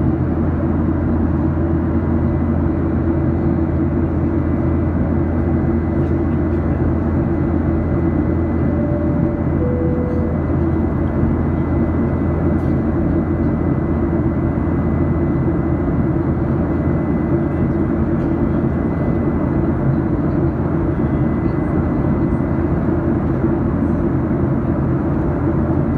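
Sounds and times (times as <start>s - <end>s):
jet airliner cabin noise: 0.0s - 25.9s
faint high tone: 8.6s - 10.5s.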